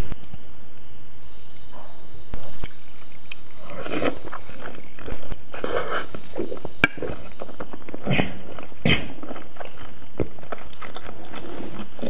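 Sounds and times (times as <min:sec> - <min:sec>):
chewing: 0:02.5 - 0:12.0
slurping noodles: 0:03.6 - 0:12.0.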